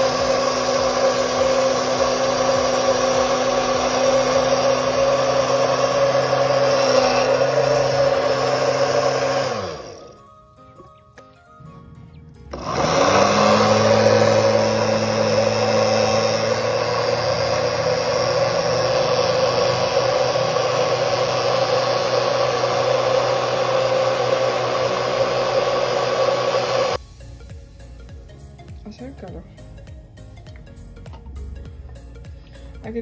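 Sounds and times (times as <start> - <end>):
blender motor running: 0.0 - 10.2, 12.5 - 27.0.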